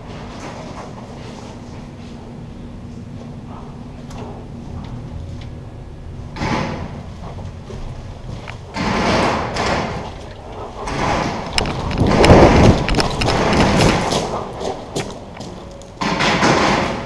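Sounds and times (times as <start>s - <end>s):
thuds and rustling of movement: 10.8s - 15.1s.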